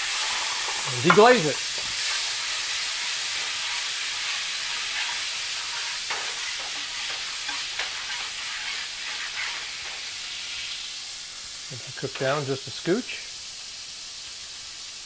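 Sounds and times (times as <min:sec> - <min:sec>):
spatula scraping pan: 0:00.0 - 0:10.0
wine sizzling in frying pan: 0:00.0 - 0:15.0.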